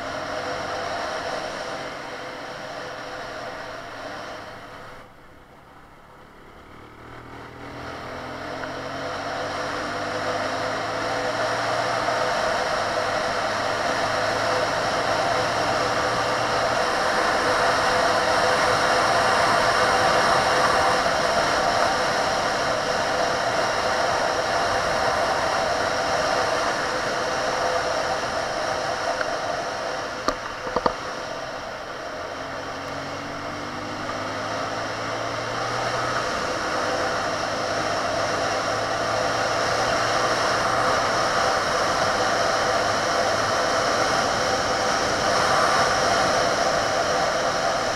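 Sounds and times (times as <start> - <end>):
motorcycle engine accelerating: 0.0 - 47.9.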